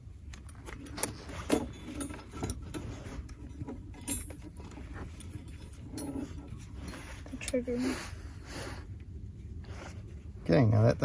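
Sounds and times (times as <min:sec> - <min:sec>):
metal trap clinking and rattling: 0:00.3 - 0:07.6.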